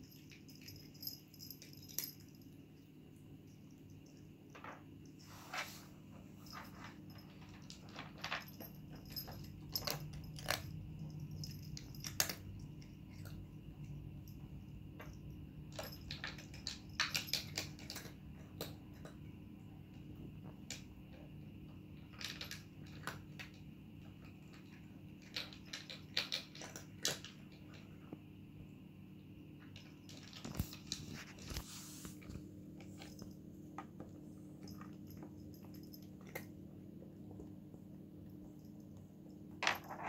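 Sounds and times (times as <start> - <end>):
steady low hum: 0.0 - 40.0
cat crunching dry kibble: 15.7 - 19.2, 24.4 - 27.8.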